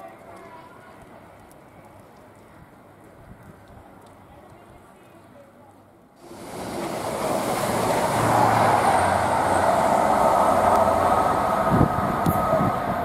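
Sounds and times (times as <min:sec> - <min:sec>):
diesel train engine: 0:06.2 - 0:13.0.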